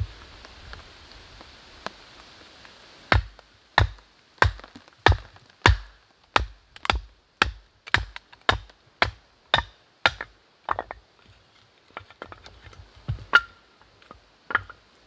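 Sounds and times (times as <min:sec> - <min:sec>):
axe chopping firewood: 0:03.1 - 0:11.0, 0:13.1 - 0:13.6, 0:14.5 - 0:14.8.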